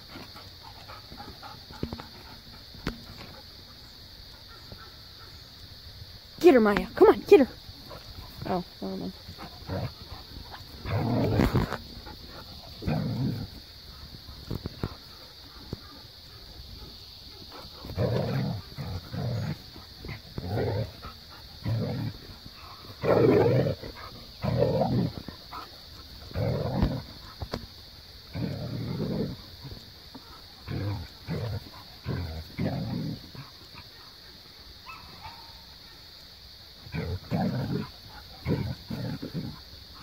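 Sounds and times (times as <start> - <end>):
dogs growly vocalizing: 7.8 - 16.1, 16.7 - 27.5, 28.2 - 34.3, 36.8 - 40.0.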